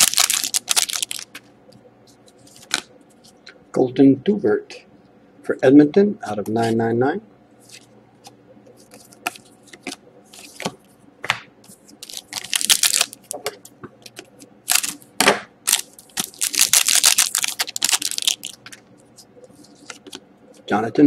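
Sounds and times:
wrapper crinkling: 0:00.0 - 0:01.4, 0:11.9 - 0:13.4, 0:14.7 - 0:15.0, 0:15.7 - 0:18.8.

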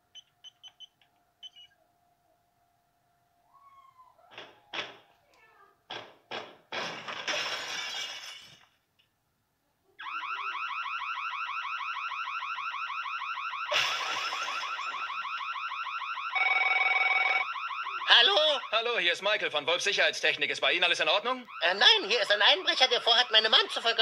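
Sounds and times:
crash: 0:06.7 - 0:08.7
glass breaking: 0:06.7 - 0:08.8
burglar alarm rising tone: 0:10.0 - 0:19.4, 0:21.3 - 0:24.0
telephone ringing: 0:16.3 - 0:18.6.

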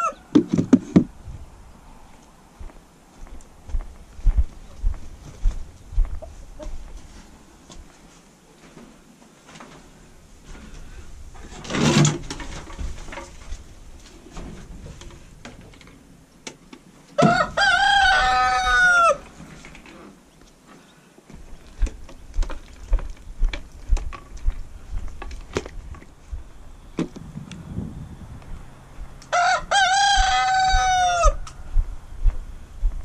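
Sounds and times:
rooster crowing: 0:00.0 - 0:00.4, 0:17.2 - 0:19.3, 0:29.3 - 0:31.5
knocks and clatters of handling: 0:11.4 - 0:16.9.

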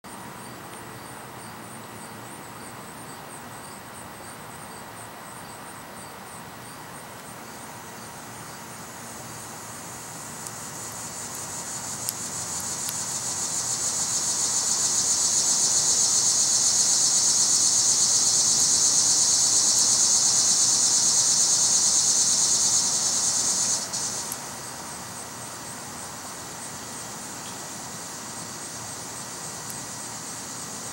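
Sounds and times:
insects chirping: 0:00.1 - 0:30.9
loud high-pitched insect buzz: 0:08.4 - 0:25.6.

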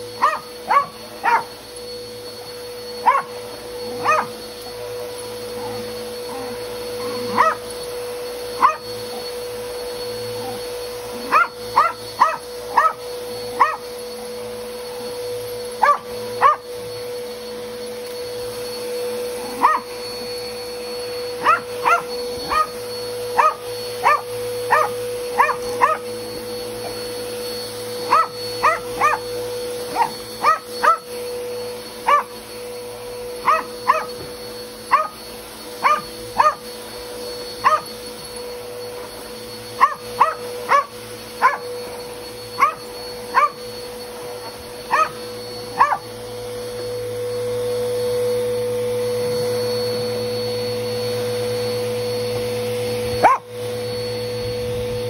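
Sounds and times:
vacuum cleaner motor hum: 0:00.0 - 0:55.0
small dog yipping: 0:00.2 - 0:01.6, 0:03.0 - 0:04.7, 0:05.6 - 0:07.7, 0:08.5 - 0:09.2, 0:10.4 - 0:14.0, 0:15.7 - 0:16.8, 0:19.4 - 0:20.0, 0:21.4 - 0:26.2, 0:27.8 - 0:32.5, 0:33.4 - 0:36.9, 0:37.5 - 0:38.1, 0:39.0 - 0:46.1, 0:53.2 - 0:53.5.

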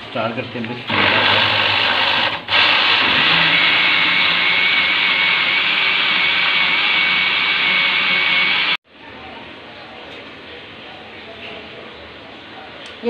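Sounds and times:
blender motor running: 0:00.9 - 0:08.8.

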